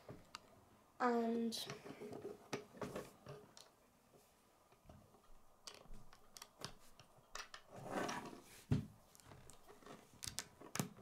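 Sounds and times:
plastic bricks clicking: 4.8s - 7.8s, 9.1s - 11.0s.

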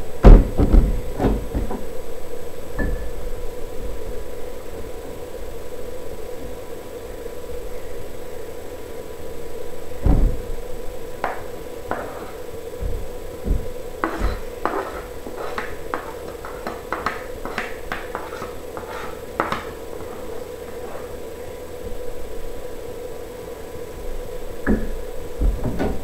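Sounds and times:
steady hum: 0.0s - 26.0s
low thump: 10.0s - 10.5s
metal spoon scraping a tray: 14.0s - 21.1s.

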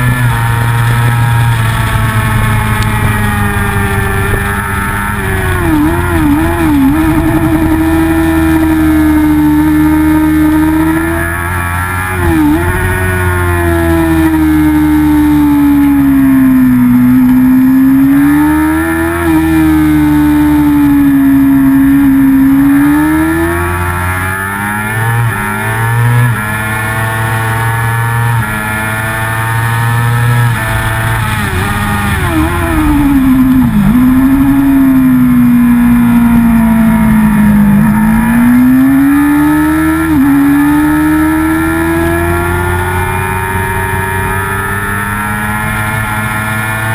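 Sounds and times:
motorcycle engine at high revs: 0.0s - 46.9s
wind rush: 1.0s - 9.6s.

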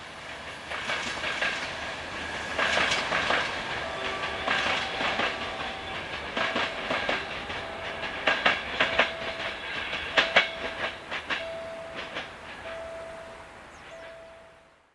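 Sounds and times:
train clattering over rail joints: 0.0s - 14.2s
thin steady tone: 8.9s - 14.9s.

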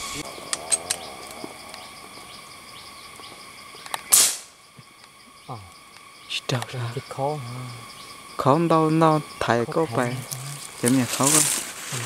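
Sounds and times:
insects droning: 0.0s - 12.0s
rifle shot: 4.1s - 4.5s.

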